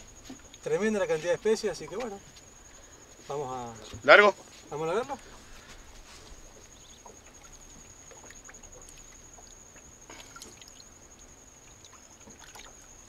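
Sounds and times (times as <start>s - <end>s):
water trickling and dripping: 0.0s - 3.1s, 4.7s - 13.0s
high-pitched insect trill: 0.0s - 13.0s
small water splashes: 6.4s - 13.0s.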